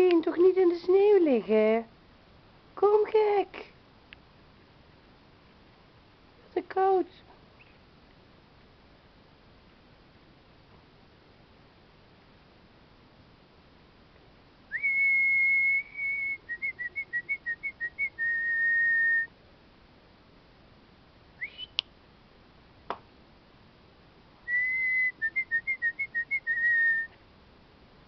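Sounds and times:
person whistling: 14.8 - 19.3, 21.4 - 21.8, 24.5 - 27.1.

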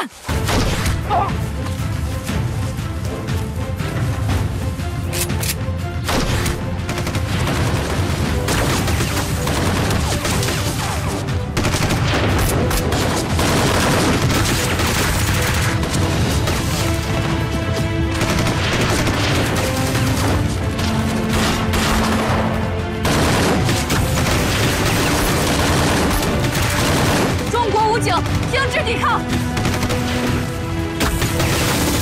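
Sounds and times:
dramatic background music: 0.0 - 32.0
rifle gunshots: 21.3 - 27.4.

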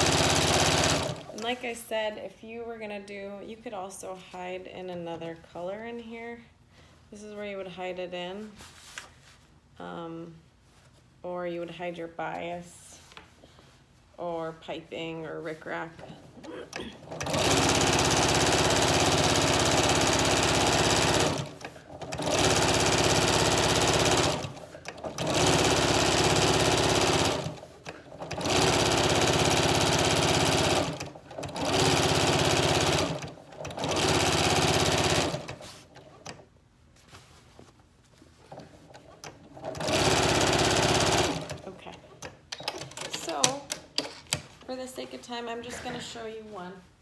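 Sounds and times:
electric sewing machine stitching: 0.0 - 1.4, 17.0 - 36.4, 38.5 - 41.7.

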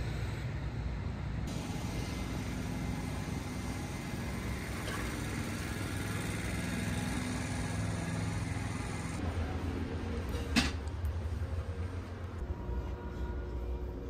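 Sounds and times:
city street traffic: 0.0 - 14.0
vehicle engine humming low: 0.0 - 14.0.

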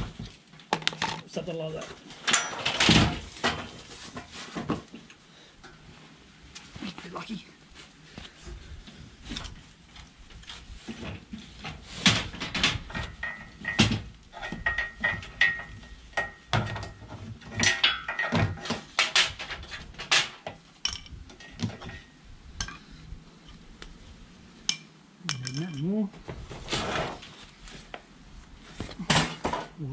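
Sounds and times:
metal step clanking and rattling: 2.2 - 3.8, 11.6 - 22.8.

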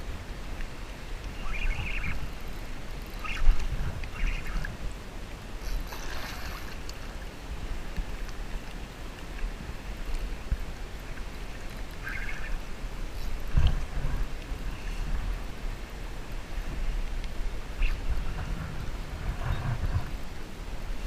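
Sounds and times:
water splashing: 0.0 - 14.6
water lapping against kayak hull: 0.0 - 20.5
wind rumble on microphone: 0.0 - 21.0.

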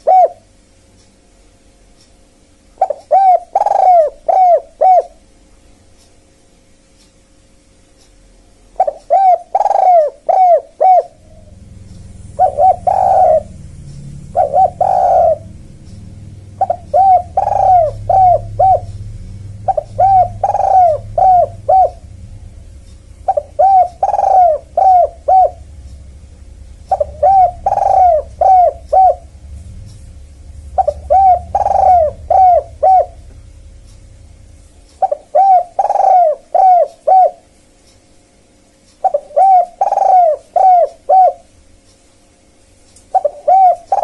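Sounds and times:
dove cooing: 0.0 - 0.5, 2.8 - 5.3, 8.8 - 29.4, 30.5 - 33.8, 35.0 - 37.6, 39.0 - 41.6, 43.1 - 44.0.

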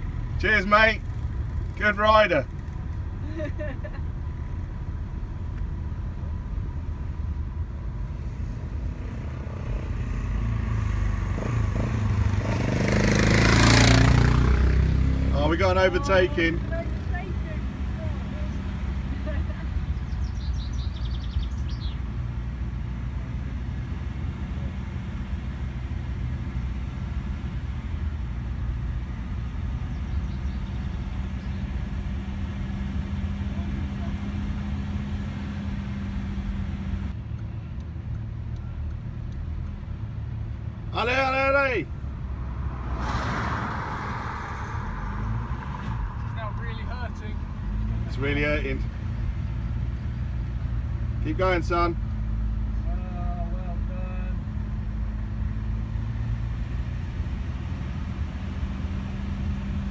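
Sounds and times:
motorcycle engine approaching: 0.0 - 4.7, 8.1 - 37.1
low engine and road rumble: 0.0 - 59.9.

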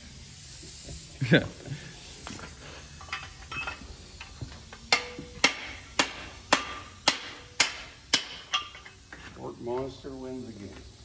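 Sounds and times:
hammer striking steel drift: 4.9 - 8.8.

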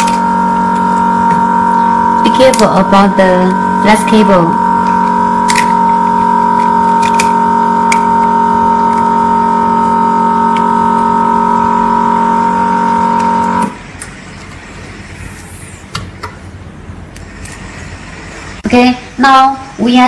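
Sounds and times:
vacuum pump humming: 0.0 - 15.4.

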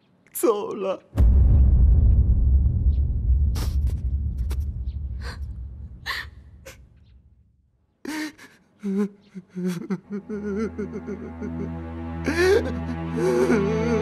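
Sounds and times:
low rumble: 1.2 - 7.5
man sobbing: 8.1 - 14.0
soft music: 8.8 - 14.0.

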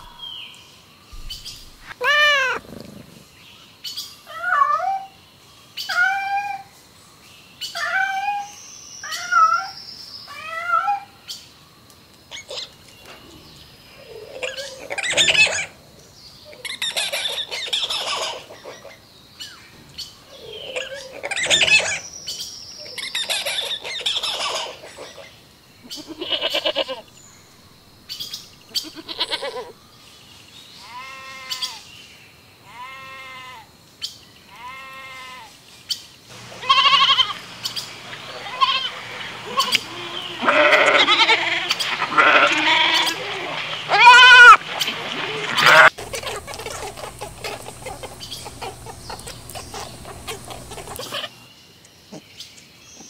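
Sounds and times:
other animal calls: 0.0 - 0.2, 1.8 - 3.3, 36.4 - 51.3
goat bleating: 1.9 - 2.9, 25.9 - 27.0, 28.8 - 29.7, 36.4 - 44.6, 45.4 - 51.3.

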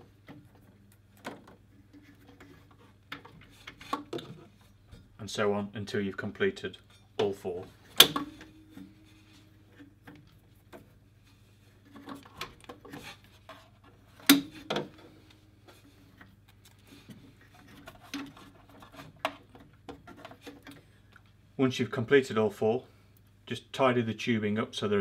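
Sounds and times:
plastic tubing rubbing and rustling: 0.0 - 4.9, 9.1 - 21.0.

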